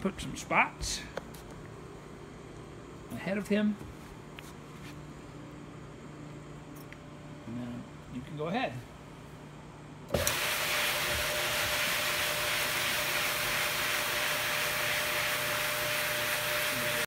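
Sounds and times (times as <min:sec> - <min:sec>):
floor buffer motor humming: 0:10.2 - 0:17.0.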